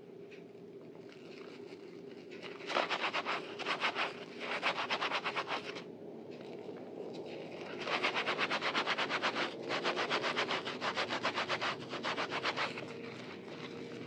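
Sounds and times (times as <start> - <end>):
soapy sponges rubbing together: 2.6 - 5.8, 7.7 - 14.0.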